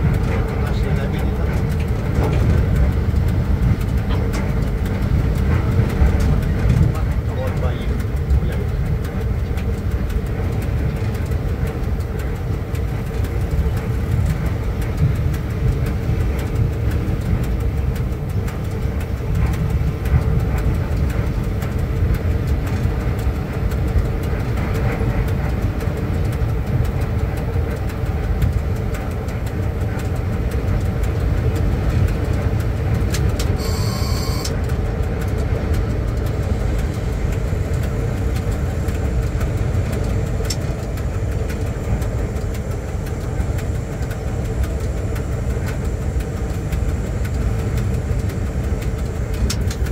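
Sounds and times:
constant hum: 0.0s - 49.9s
train running gear rumble: 0.0s - 49.9s
brief high-pitched tone: 33.6s - 34.5s.

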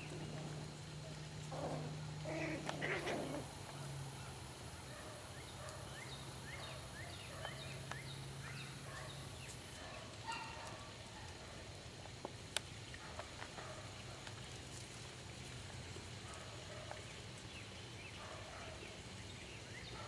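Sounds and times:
rapid animal calls: 0.0s - 3.6s.

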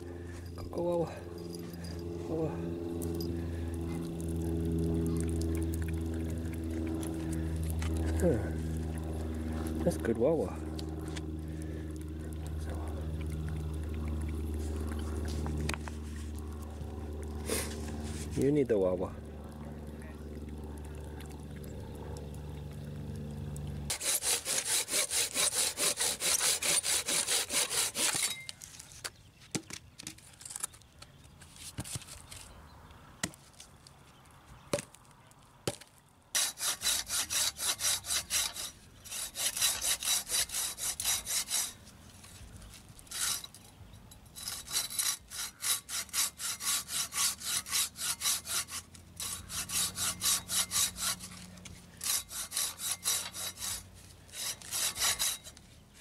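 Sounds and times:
hand saw cutting wood: 17.4s - 18.5s, 23.9s - 28.5s, 36.3s - 42.4s, 43.1s - 43.7s, 44.4s - 55.7s.

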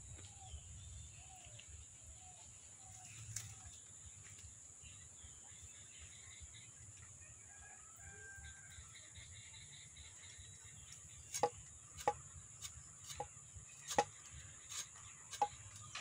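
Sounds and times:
birds chirping: 9.0s - 16.0s.

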